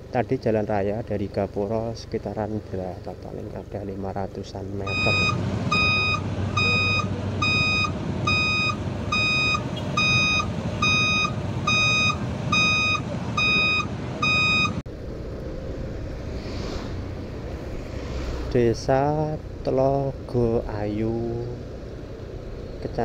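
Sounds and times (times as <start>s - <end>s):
low engine rumble: 0.0s - 23.0s
vehicle reversing beeper: 4.8s - 14.8s.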